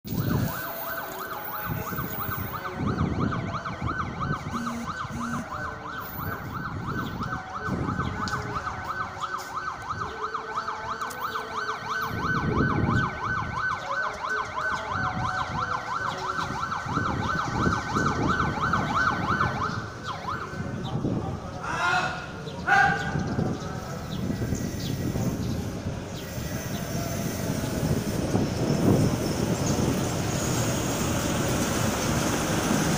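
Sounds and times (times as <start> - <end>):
electronic warbling siren: 0.1 - 20.8, 23.6 - 31.0.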